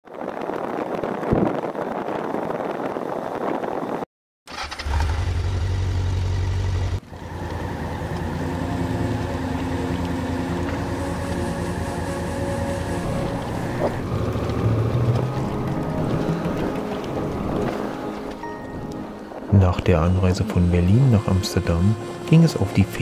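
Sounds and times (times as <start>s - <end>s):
riding wind rush: 0.0s - 5.0s, 7.0s - 23.0s
motorcycle engine: 4.5s - 18.3s.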